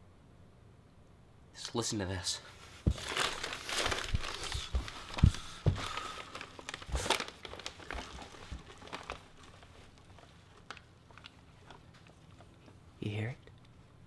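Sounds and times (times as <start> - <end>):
paper bag rustling and crinkling: 2.6 - 11.4.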